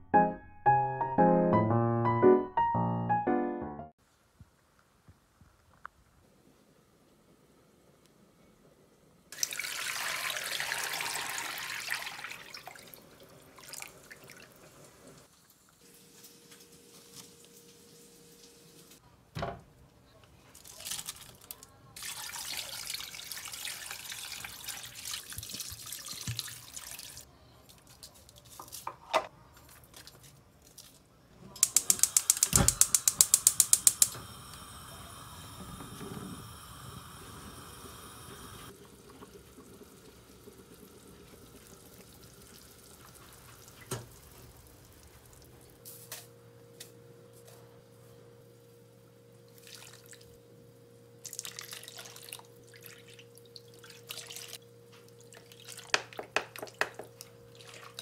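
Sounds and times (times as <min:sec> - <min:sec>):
water pouring into frying pan: 0:09.4 - 0:14.7, 0:20.6 - 0:27.3, 0:38.3 - 0:45.4
gas stove igniter clicking: 0:31.6 - 0:38.7
gas burner hissing: 0:31.6 - 0:43.0.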